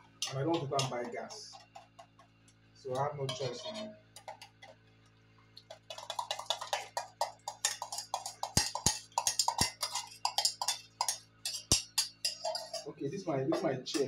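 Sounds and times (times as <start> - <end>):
utensil scraping steel bowl: 3.2 - 4.7, 5.9 - 14.0.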